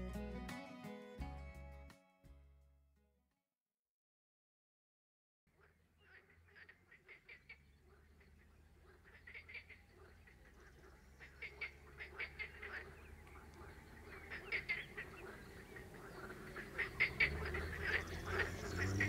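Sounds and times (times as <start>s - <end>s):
frogs calling in chorus: 5.6s - 19.0s.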